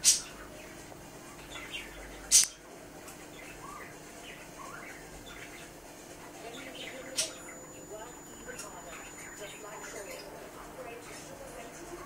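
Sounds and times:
budgerigar chirping and warbling: 3.3s - 5.7s.

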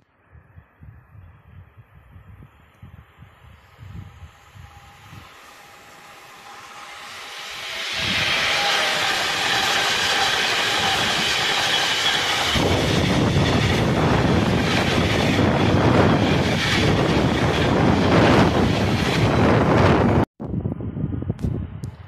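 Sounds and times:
electric locomotive whine: 2.9s - 20.3s.

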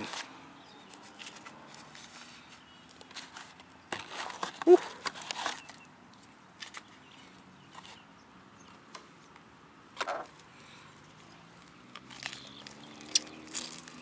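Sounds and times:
paper box rustling and crinkling: 0.0s - 8.0s.

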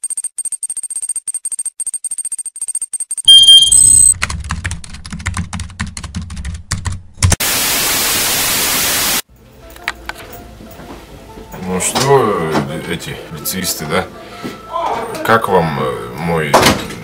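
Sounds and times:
loud electronic tone: 3.3s - 4.2s
rapid keyboard typing clicks: 4.1s - 7.4s
tv static burst: 7.4s - 9.2s.

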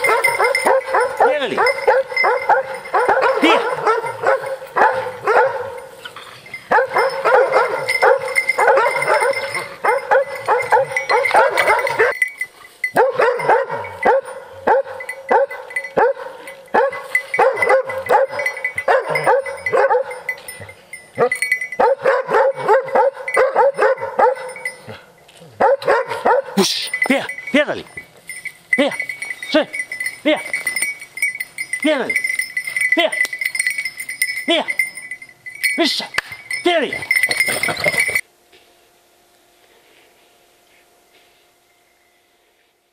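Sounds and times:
dogs barking and yelping: 0.0s - 27.5s.

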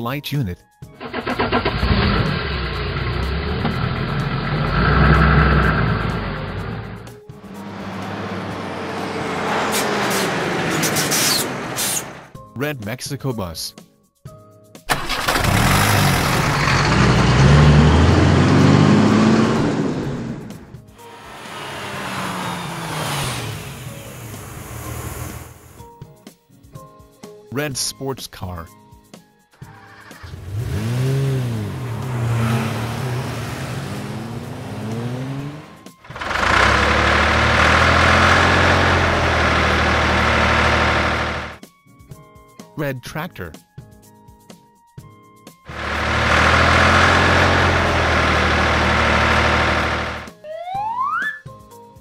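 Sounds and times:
cartoon bus engine revving: 0.9s - 12.3s, 14.9s - 25.9s, 29.6s - 41.6s, 45.7s - 51.4s.

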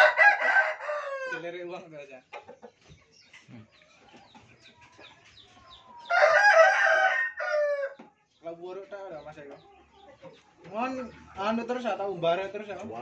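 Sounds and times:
rooster crowing: 0.0s - 1.4s, 6.0s - 8.0s.

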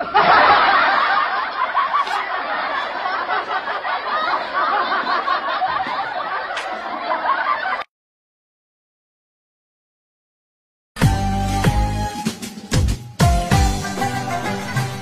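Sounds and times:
audience laughing: 0.0s - 7.9s.

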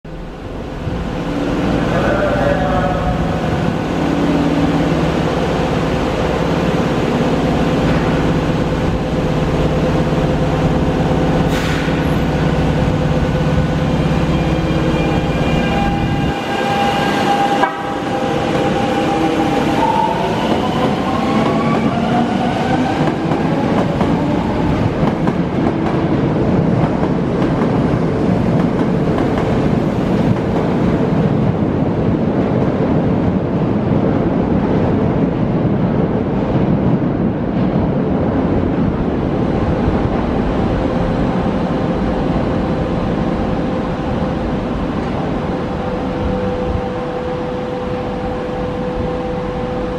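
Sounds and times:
wheels rumbling on rail: 0.0s - 49.9s
electric train whining: 0.2s - 26.3s.

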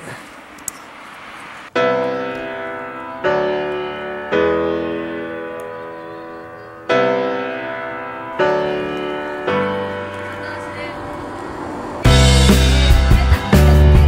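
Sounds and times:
slow piano chords: 1.7s - 14.0s.

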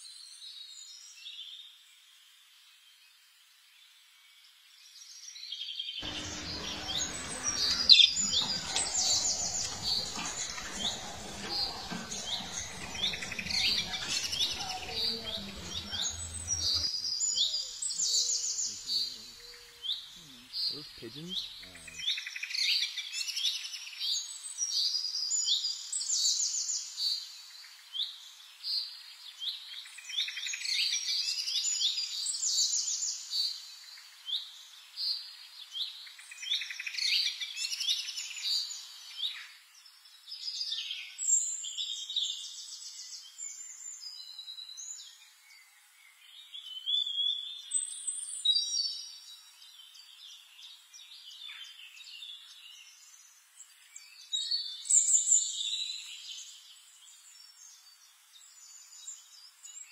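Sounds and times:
finch singing warble: 6.0s - 22.1s.

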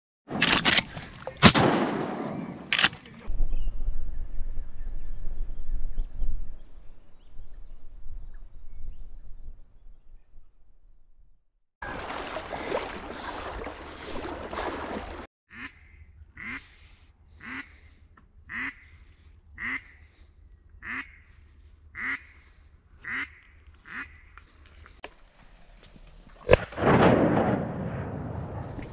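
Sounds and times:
duck quacking: 15.5s - 19.0s, 19.6s - 20.2s, 20.8s - 24.3s.

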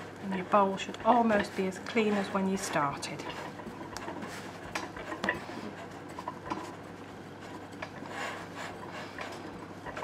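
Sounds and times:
hands kneading soft dough: 0.0s - 10.0s.

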